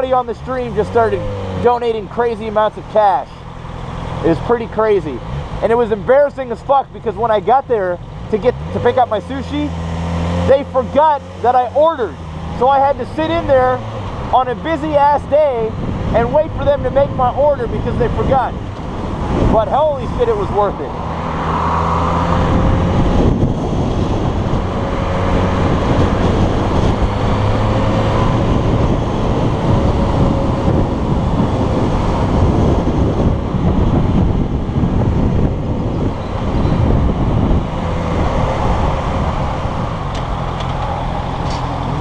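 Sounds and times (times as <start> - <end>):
wind buffeting: 12.2 - 42.0.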